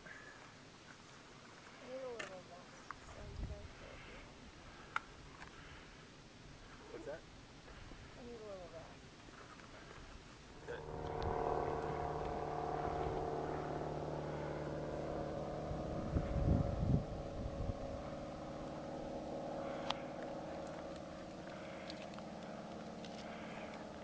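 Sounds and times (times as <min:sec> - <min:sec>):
wind buffeting microphone: 0:03.1 - 0:03.9, 0:10.5 - 0:24.0
propeller airplane engine drone: 0:09.6 - 0:24.0.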